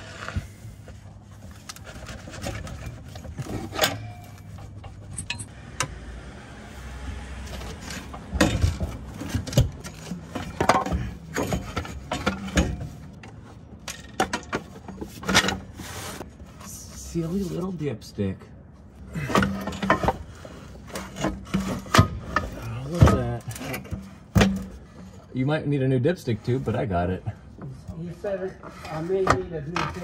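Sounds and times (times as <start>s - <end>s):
metallic clinks and knocks of tools: 3.7s - 5.5s.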